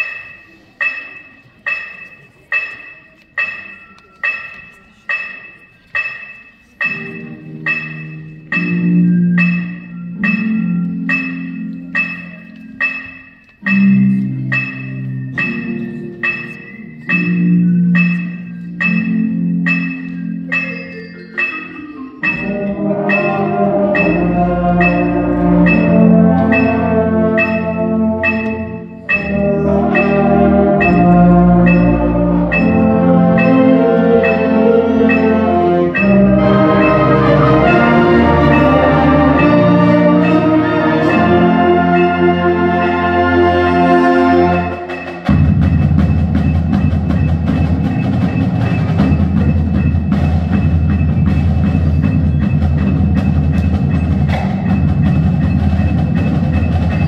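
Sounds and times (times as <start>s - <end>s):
mallet percussion notes: 0.0s - 57.0s
concert band brass and woodwinds: 22.2s - 45.8s.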